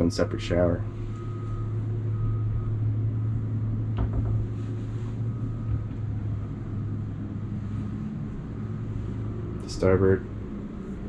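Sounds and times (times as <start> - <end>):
low machinery hum: 0.0 - 11.0
light knock: 4.0 - 4.5.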